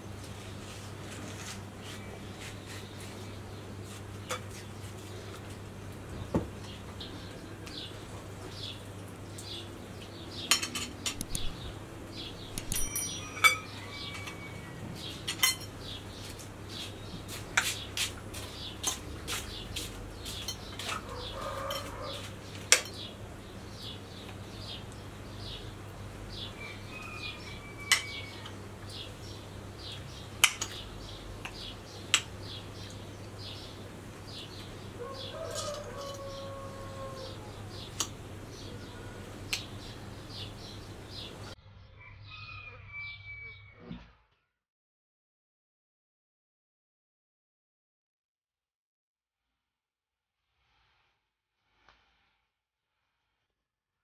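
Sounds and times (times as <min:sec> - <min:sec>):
cutlery clinking on plates: 0:10.5 - 0:11.5, 0:12.6 - 0:15.8, 0:20.3 - 0:23.1, 0:27.8 - 0:28.5.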